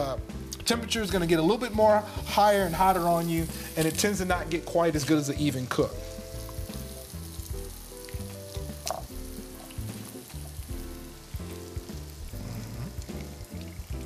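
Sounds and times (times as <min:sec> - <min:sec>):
soft background music: 0:00.0 - 0:14.0
bread sizzling on griddle: 0:01.6 - 0:14.0.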